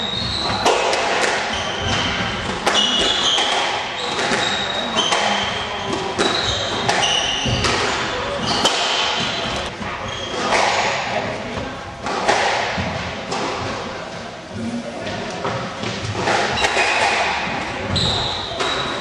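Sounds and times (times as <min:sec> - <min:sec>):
squash ball striking rackets and walls: 0:00.0 - 0:13.8, 0:15.0 - 0:19.0
shoes squeaking on wooden floor: 0:01.5 - 0:10.5.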